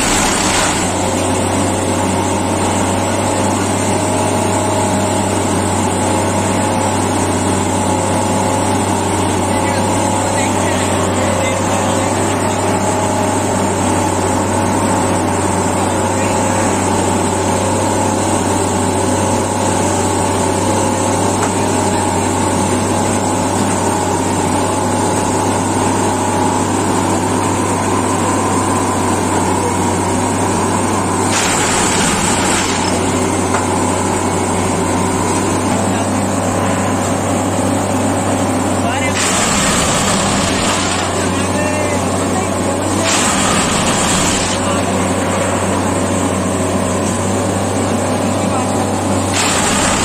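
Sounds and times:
machine engine humming and whining: 0.0s - 50.0s.

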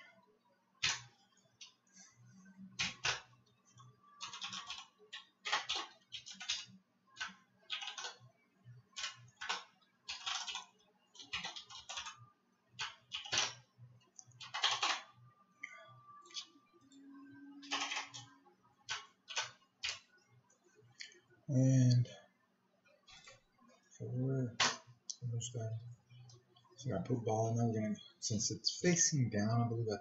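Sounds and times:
computer keyboard typing: 0.8s - 1.8s, 2.8s - 8.3s, 8.9s - 12.2s, 12.8s - 15.1s, 17.6s - 18.3s, 18.9s - 20.1s.

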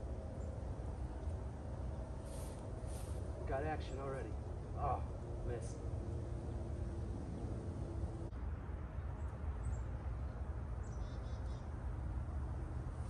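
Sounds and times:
steady low rumble: 0.0s - 8.6s
faint steady hum: 0.0s - 13.0s.

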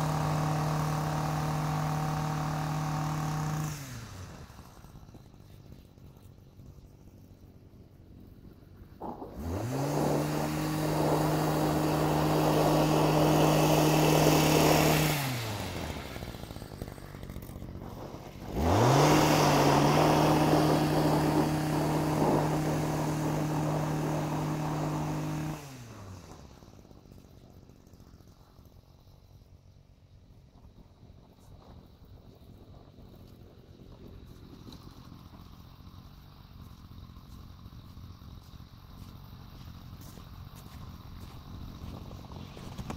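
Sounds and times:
power broom engine revving: 0.0s - 5.7s, 8.9s - 28.7s, 33.6s - 42.9s.

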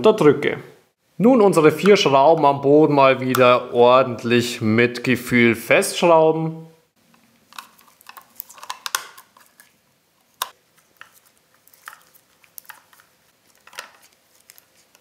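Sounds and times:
screwdriver clicks and scrapes: 7.5s - 9.7s.

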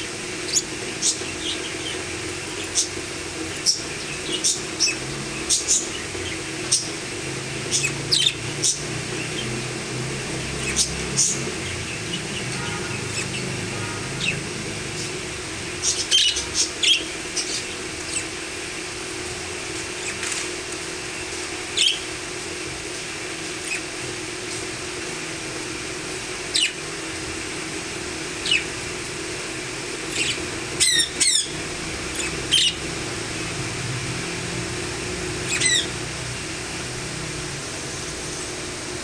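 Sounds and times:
budgerigars chirping and squawking: 7.7s - 9.5s, 10.6s - 14.4s, 15.8s - 18.3s, 28.4s - 28.6s, 30.1s - 32.8s, 35.4s - 36.1s.

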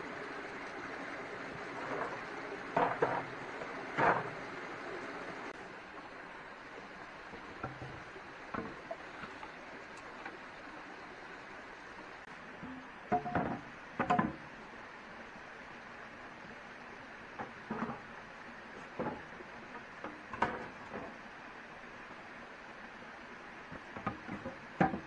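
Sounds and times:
steady background hiss: 0.0s - 25.0s
short knocks and clatters: 1.8s - 3.3s.

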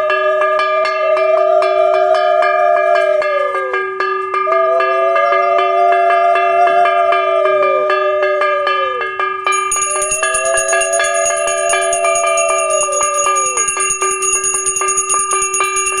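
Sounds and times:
hand bell rung rapidly: 8.4s - 16.0s.

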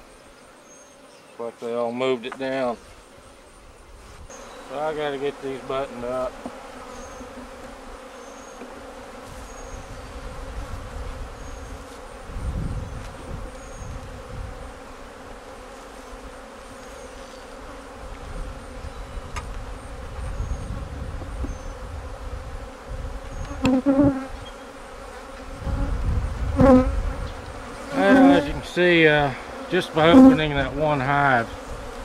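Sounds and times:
bee buzzing close to microphone: 0.0s - 32.0s
bees buzzing: 0.0s - 32.0s.

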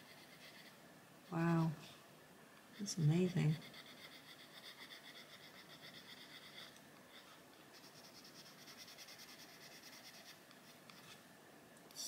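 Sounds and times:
pencil scratching on paper: 0.0s - 0.8s, 2.7s - 11.2s.

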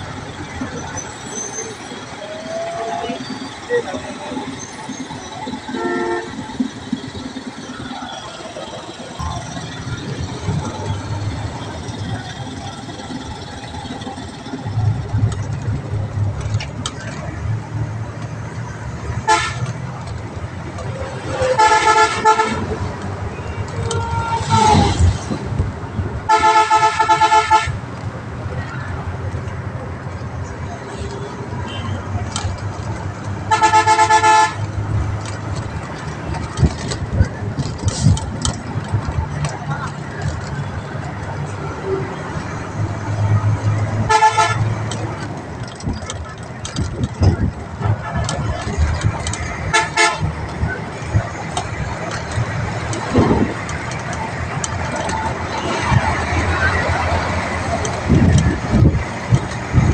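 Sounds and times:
vehicle engine rumbling: 0.0s - 59.9s
vehicle horn blast: 5.7s - 6.6s, 19.3s - 19.7s, 21.4s - 22.7s, 23.8s - 25.1s, 26.3s - 27.8s, 33.5s - 34.6s, 44.1s - 44.8s, 49.7s - 50.3s.

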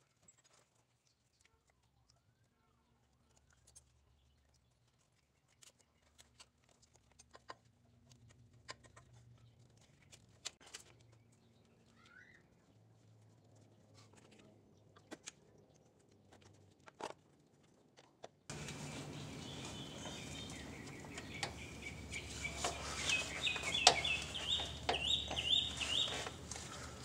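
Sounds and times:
sharp clicks and knocks: 18.5s - 26.7s
birds chirping: 18.5s - 27.0s.

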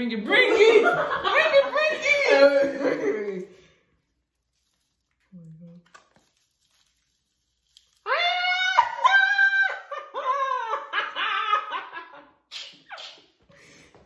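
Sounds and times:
women shrieking with laughter: 8.1s - 12.2s.

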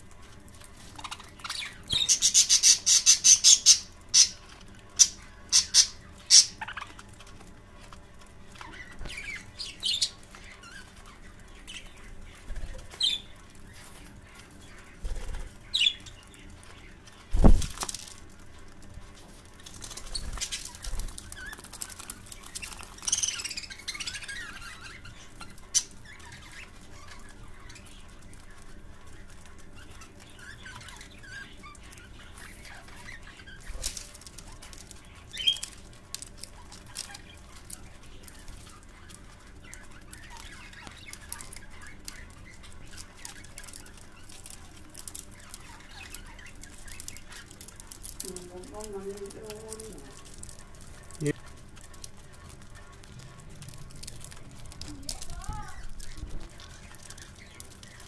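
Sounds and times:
wings fluttering: 0.1s - 58.0s
budgerigars chirping: 0.8s - 7.4s, 8.5s - 17.6s, 19.8s - 35.8s.

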